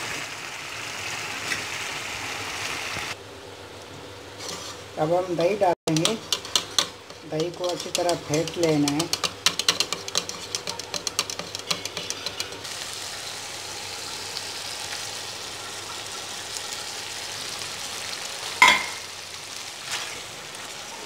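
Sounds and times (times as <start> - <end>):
gravy sizzling in a frying pan: 0.0 - 3.2, 4.2 - 21.0
whisk clicking in a bowl: 5.9 - 12.6.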